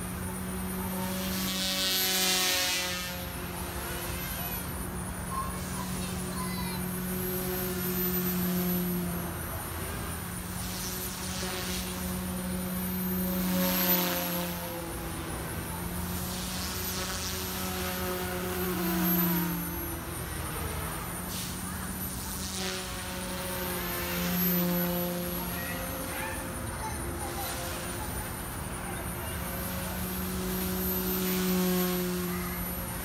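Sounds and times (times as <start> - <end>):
helicopter rotor hum: 0.0 - 33.0
high motor whine: 0.0 - 33.0.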